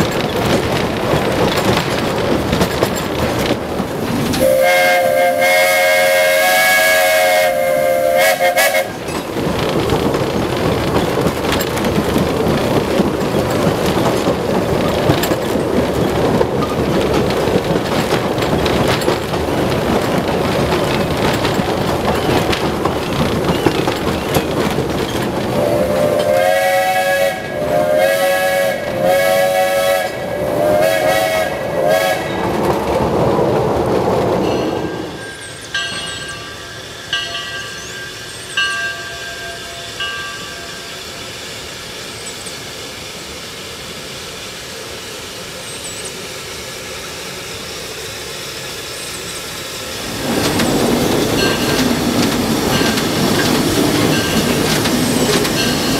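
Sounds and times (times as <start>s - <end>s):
moving train rumble: 0.0s - 55.9s
steam locomotive chord whistle: 4.4s - 9.0s, 25.6s - 32.4s.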